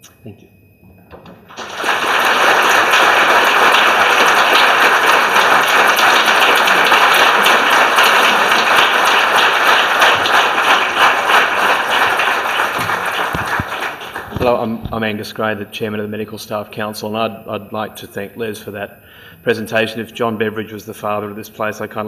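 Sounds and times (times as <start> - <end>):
audience applause: 1.5 - 14.8.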